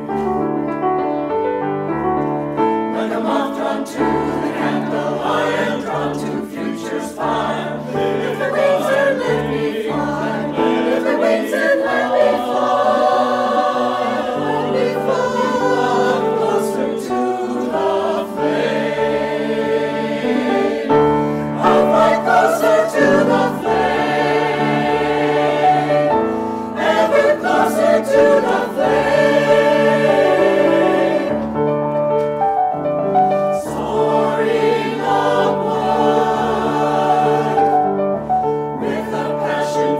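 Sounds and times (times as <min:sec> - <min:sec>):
grand piano: 0:00.0 - 0:39.9
mixed choir singing: 0:02.6 - 0:31.6, 0:33.3 - 0:39.9.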